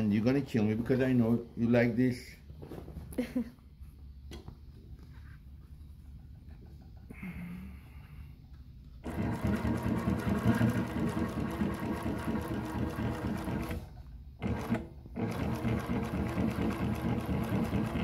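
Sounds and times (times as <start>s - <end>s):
industrial sewing machine stitching: 9.0s - 18.0s.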